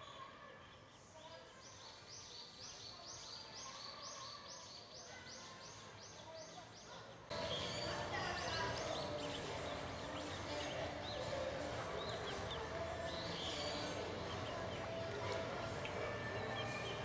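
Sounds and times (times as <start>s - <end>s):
ducklings peeping: 7.4s - 17.0s.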